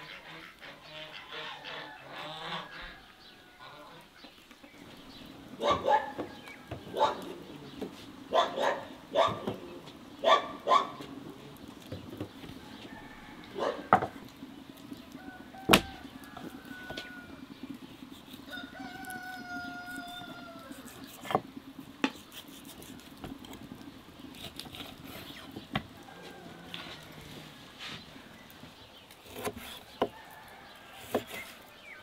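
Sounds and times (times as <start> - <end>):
rooster crowing: 1.4 - 4.0, 12.5 - 14.2, 15.0 - 21.0, 25.8 - 27.7, 30.0 - 31.8.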